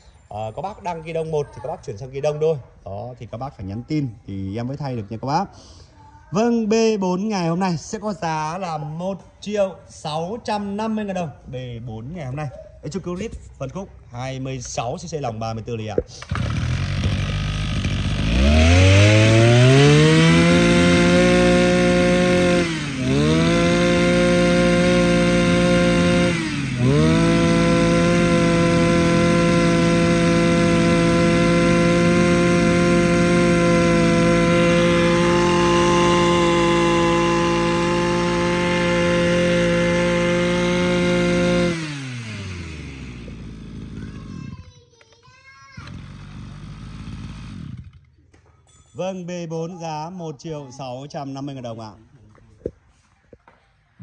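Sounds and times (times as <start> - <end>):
brush cutter engine revving: 16.0 - 44.7, 45.8 - 48.2.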